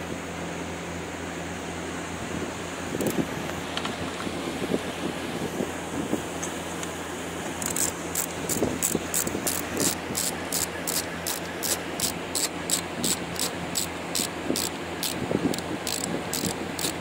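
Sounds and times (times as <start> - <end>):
socket ratchet clicking: 7.6 - 17.0.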